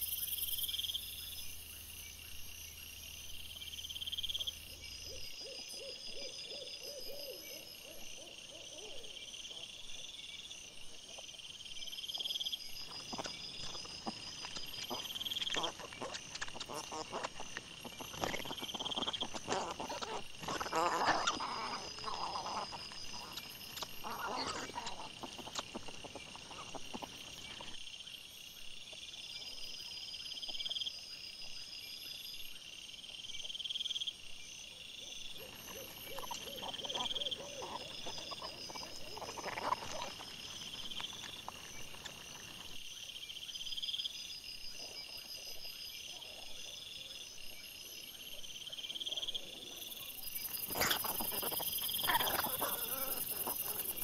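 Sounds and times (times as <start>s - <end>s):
night chorus of chirping animals: 0.0s - 54.0s
wild boar rustling and grunting: 12.2s - 27.8s, 35.4s - 42.9s, 49.1s - 54.0s.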